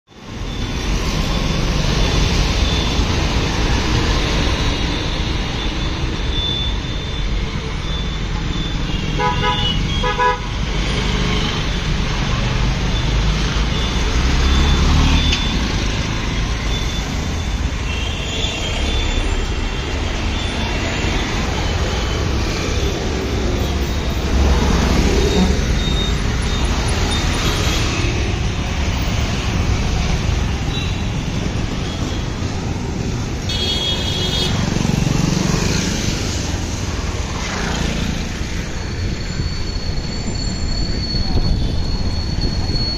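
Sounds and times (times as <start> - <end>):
road traffic engines: 0.0 - 42.9
car horns honking: 8.9 - 10.6.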